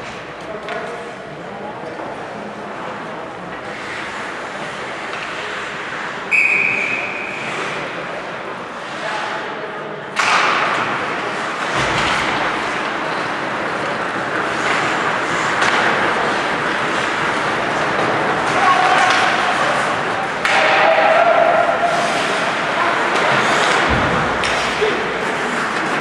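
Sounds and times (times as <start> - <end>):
skating on ice: 2.3 - 9.4, 10.2 - 26.0.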